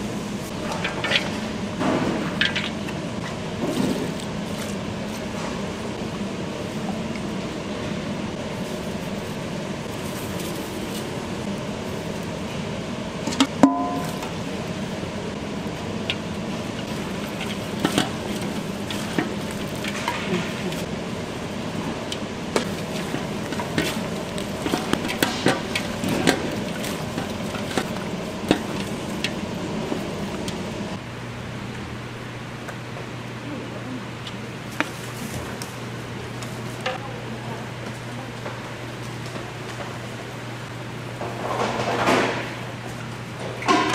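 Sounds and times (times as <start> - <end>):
steady hum: 0.0 - 43.9
loud metal clang: 13.5 - 14.2.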